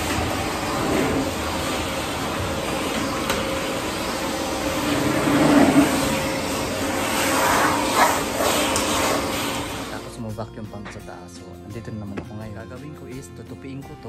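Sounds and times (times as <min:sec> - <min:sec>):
vacuum cleaner running: 0:00.0 - 0:10.3.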